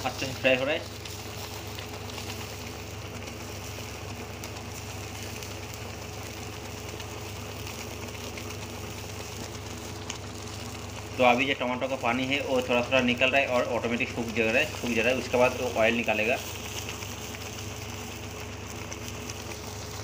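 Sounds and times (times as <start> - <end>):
steady machine-like hum: 0.0 - 20.0.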